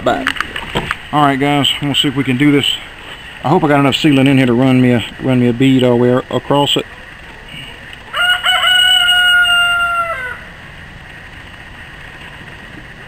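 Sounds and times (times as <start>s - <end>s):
rooster crowing: 8.1s - 10.6s.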